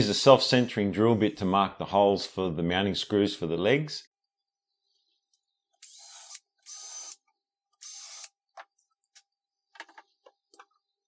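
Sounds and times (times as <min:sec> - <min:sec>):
cordless drill bursts: 0:05.8 - 0:07.2, 0:07.8 - 0:08.3.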